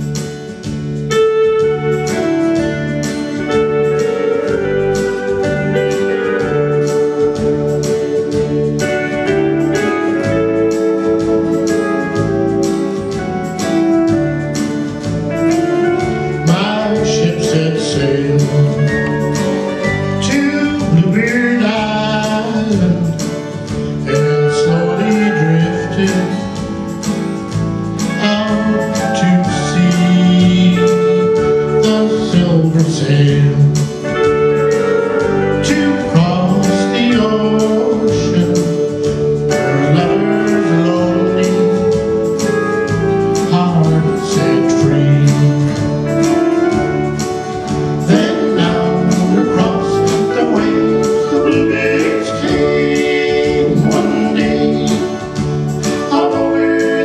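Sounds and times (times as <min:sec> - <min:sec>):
electronic keyboard dance music: 0:00.0 - 0:31.8, 0:33.1 - 0:57.0
person singing: 0:14.6 - 0:26.8, 0:28.0 - 0:57.0.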